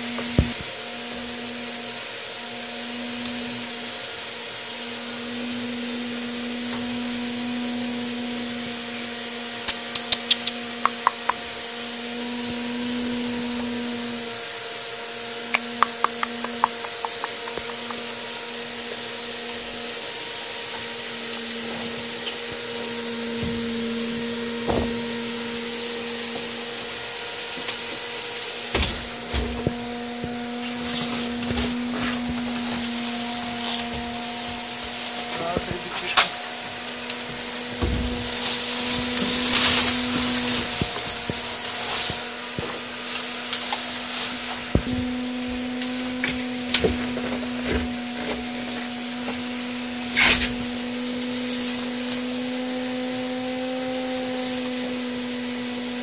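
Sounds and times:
steady mechanical hum: 0.0s - 56.0s
rustling: 21.6s - 46.1s.

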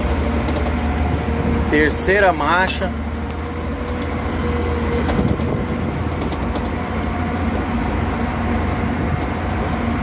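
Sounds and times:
knocks and rattles: 0.0s - 0.9s, 5.0s - 7.0s
diesel engine running under load: 0.0s - 10.0s.

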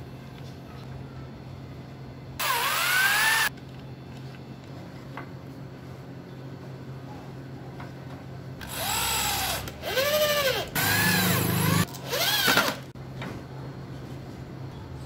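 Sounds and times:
electric drill whining into wood: 2.4s - 3.5s, 8.6s - 12.8s.

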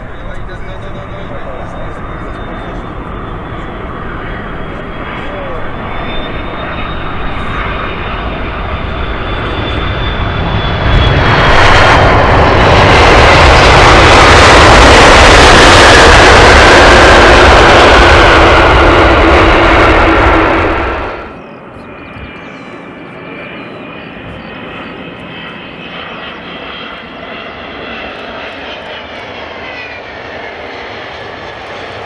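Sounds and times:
reverse thrust roar: 0.0s - 21.4s
jet engine whine: 0.0s - 32.0s.

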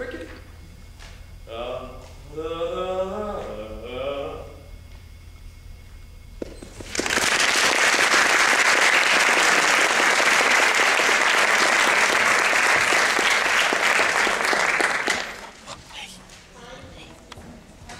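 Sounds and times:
audience applauding: 6.9s - 15.8s.

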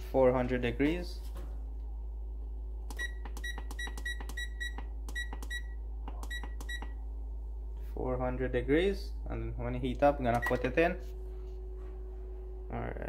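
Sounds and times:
short high control panel beeps: 2.9s - 7.0s, 10.4s - 10.7s.

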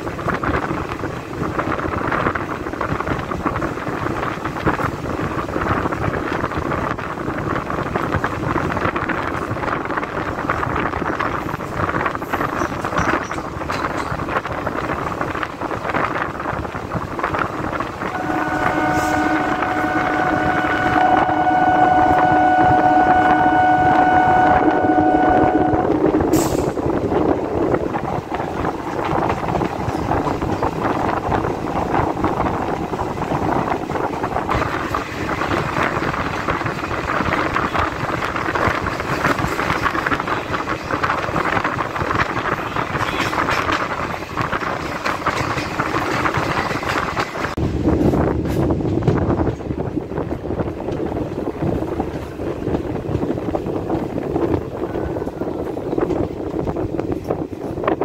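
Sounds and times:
train wheels on rail: 0.0s - 58.0s
wind rushing: 0.0s - 58.0s
train horn blast: 18.0s - 26.7s.

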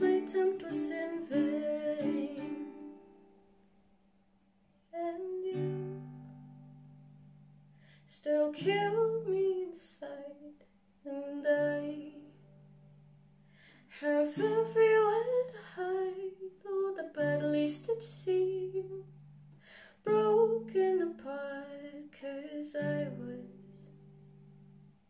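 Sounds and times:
woman singing slow melody: 0.0s - 3.2s, 4.9s - 6.4s, 8.1s - 12.6s, 13.9s - 19.2s, 19.9s - 24.2s
ukulele chords strummed: 0.0s - 3.4s.

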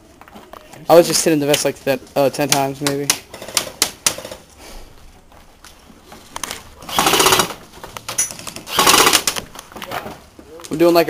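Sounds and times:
airsoft gunfire: 6.9s - 7.6s, 8.7s - 9.4s.

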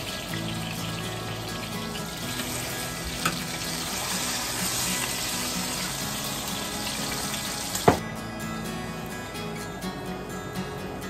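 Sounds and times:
grease sizzling in a frying pan: 0.0s - 8.0s.

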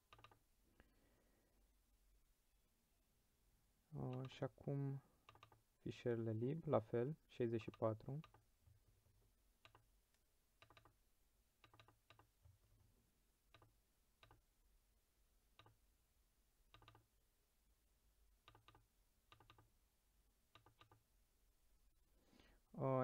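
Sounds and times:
computer mouse clicks: 0.1s - 0.4s, 5.2s - 5.6s, 7.6s - 8.4s, 9.6s - 9.8s, 10.6s - 11.0s, 11.6s - 12.3s, 13.5s - 14.4s, 15.6s - 15.8s, 16.7s - 17.0s, 18.4s - 19.7s, 20.5s - 21.0s.

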